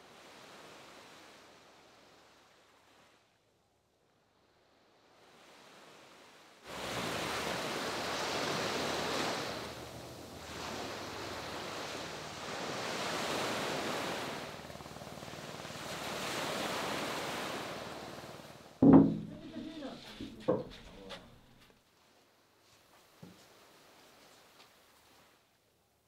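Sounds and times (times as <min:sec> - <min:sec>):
waves washing onto beach: 0:00.0 - 0:03.2, 0:04.9 - 0:21.3.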